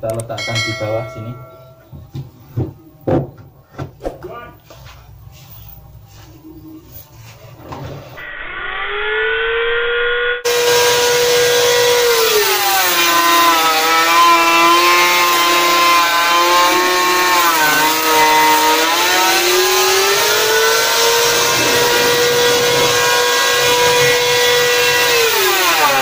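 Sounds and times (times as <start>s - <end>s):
electric hand planer whining: 8.3s - 26.0s.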